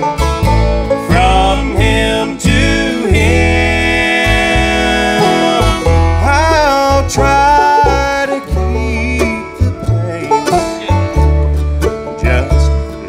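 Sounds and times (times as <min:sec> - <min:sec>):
bluegrass band playing: 0:00.0 - 0:13.0
upright bass notes: 0:00.0 - 0:13.0.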